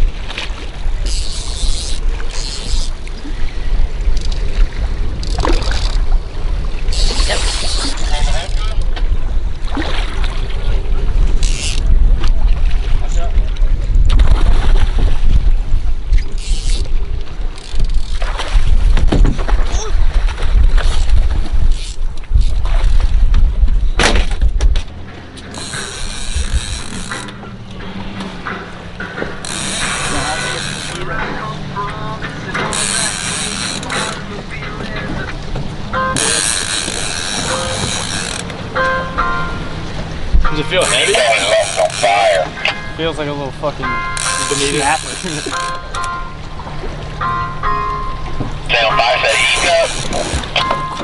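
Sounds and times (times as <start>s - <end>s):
wind buffeting microphone: 0.0s - 25.2s
water splashing against hull: 0.0s - 51.0s
fishing reel mechanism running: 1.0s - 3.1s, 5.1s - 6.0s, 6.9s - 8.8s, 11.4s - 11.9s, 16.2s - 16.9s, 17.5s - 18.2s, 21.7s - 22.6s, 25.5s - 27.3s, 29.4s - 31.1s, 32.7s - 34.2s, 36.2s - 38.5s, 40.8s - 42.4s, 44.0s - 46.2s, 49.3s - 50.5s.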